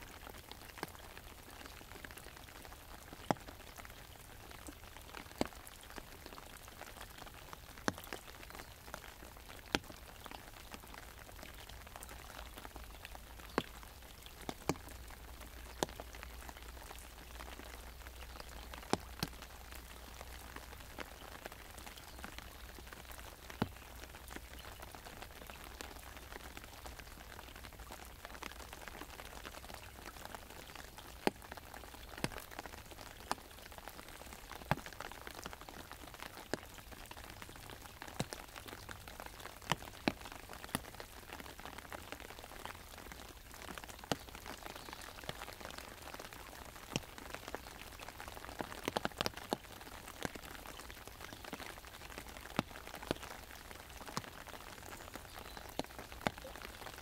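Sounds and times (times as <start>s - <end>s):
rain pattering on umbrella: 0.0s - 57.0s.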